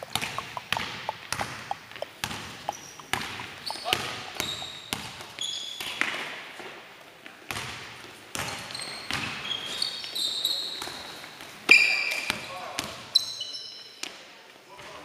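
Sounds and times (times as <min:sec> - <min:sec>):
basketball bouncing on wooden floor: 0:00.0 - 0:06.0
shoes squeaking on floor: 0:00.0 - 0:06.2, 0:08.5 - 0:14.0.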